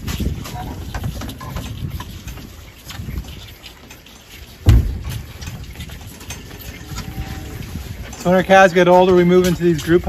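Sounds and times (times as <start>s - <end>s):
loud thump: 4.6s - 5.2s.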